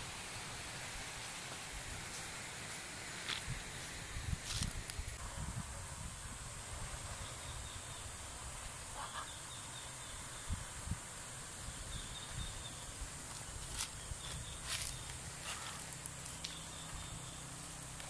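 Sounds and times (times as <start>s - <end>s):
steady hiss: 0.0s - 18.0s
wind rumble on microphone: 3.3s - 8.7s, 10.2s - 15.1s.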